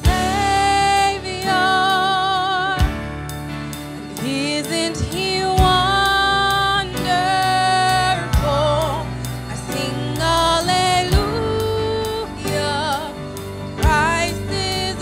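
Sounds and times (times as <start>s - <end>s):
worship band playing slow song: 0.0s - 15.0s
singers holding long notes: 4.2s - 15.0s.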